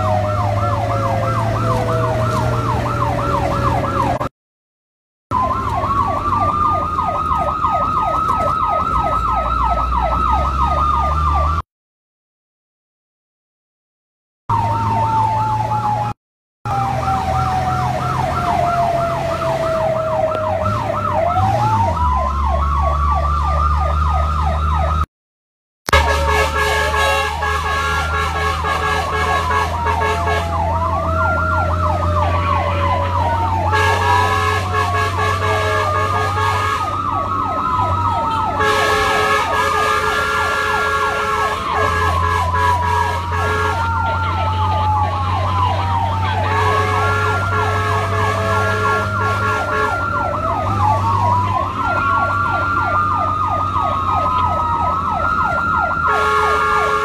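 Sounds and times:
wailing and yelping sirens: 0.0s - 4.3s, 5.3s - 11.6s, 14.5s - 25.1s, 25.9s - 57.0s
steady horn blasts: 25.9s - 37.2s, 38.0s - 52.2s, 56.0s - 57.0s.

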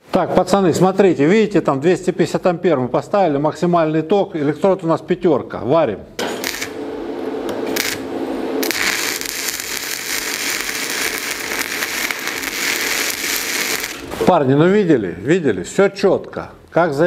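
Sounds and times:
welding arc crackling hiss: 6.2s - 14.4s.

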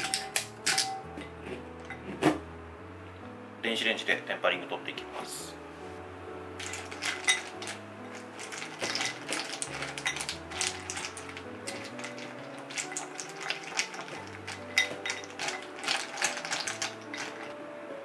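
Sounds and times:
chocolate pieces clattering in glass bowl: 0.0s - 1.1s, 6.6s - 17.6s
soft background music: 0.0s - 18.0s
spatula scraping bowl: 6.6s - 17.6s.

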